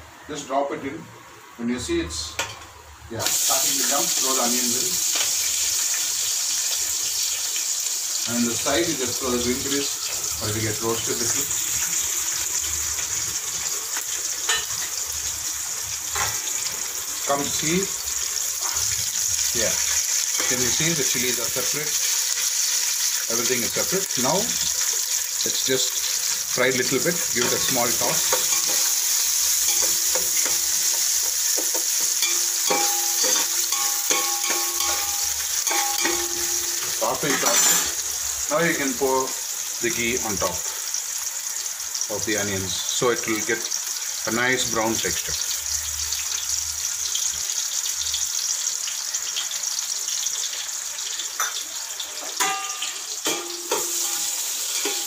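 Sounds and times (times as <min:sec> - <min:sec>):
food sizzling in hot oil: 0:01.8 - 0:55.0
metal utensils clinking on pot: 0:14.5 - 0:15.0, 0:27.1 - 0:38.0, 0:52.2 - 0:55.0.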